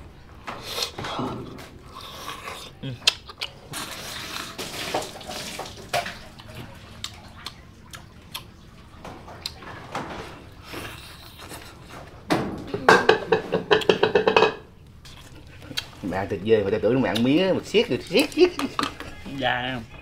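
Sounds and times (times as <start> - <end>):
chewing and sucking: 1.8 - 4.9, 6.4 - 8.6, 10.6 - 11.9, 14.8 - 16.1
chopsticks clicking on bowls: 18.2 - 19.1.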